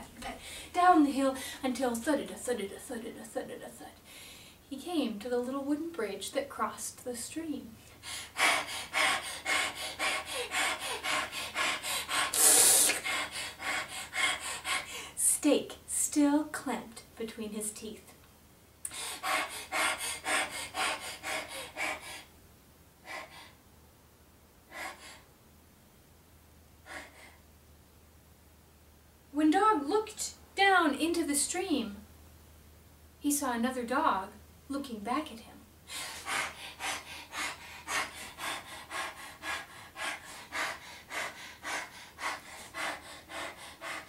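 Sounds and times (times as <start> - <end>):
woman panting: 0.0 - 1.6, 7.9 - 15.2, 18.9 - 22.3, 24.7 - 25.2, 26.9 - 27.4, 35.9 - 44.0.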